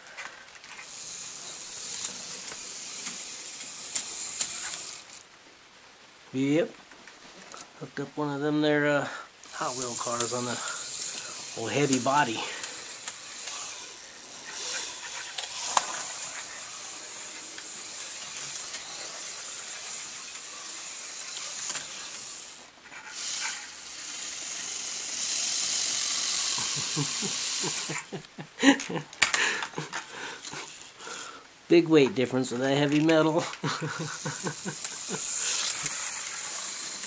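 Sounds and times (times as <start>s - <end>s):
slot car motor whirring: 0.7s - 5.2s, 9.5s - 28.2s, 32.9s - 37.0s.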